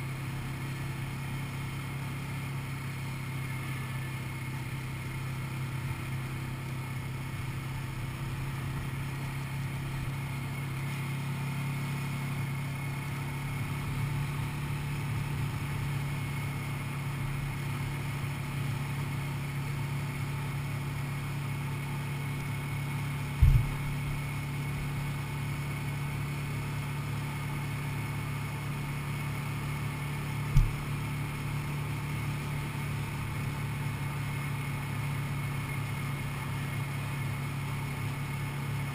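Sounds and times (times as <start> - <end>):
quad bike engine running: 0.0 - 38.9
sharp low thumps: 23.4 - 24.0, 30.5 - 31.0.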